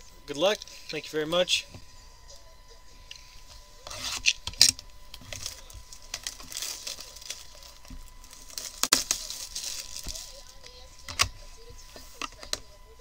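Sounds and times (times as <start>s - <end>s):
cardboard and wrapping crinkling: 5.1s - 12.5s.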